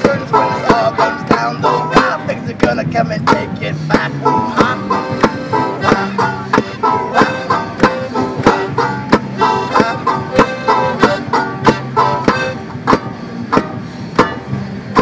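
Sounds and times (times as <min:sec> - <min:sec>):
accordion chords: 0:00.0 - 0:15.0
banjo picking: 0:00.0 - 0:15.0.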